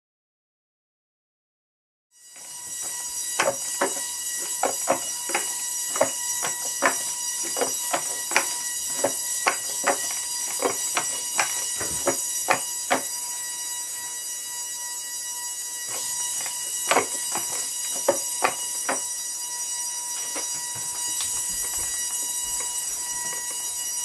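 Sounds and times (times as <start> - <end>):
robot servos whining: 2.4 - 13.3.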